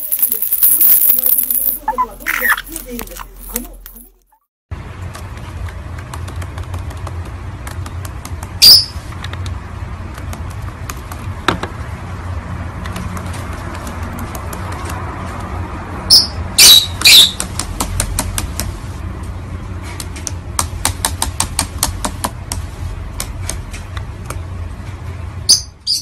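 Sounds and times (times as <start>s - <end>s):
bird squawking shrilly: 16.1s - 17.4s.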